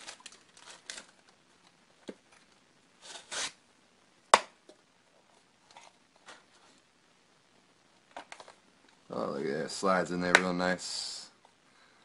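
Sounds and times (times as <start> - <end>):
plastic wrapping crinkling: 0.0 - 1.4.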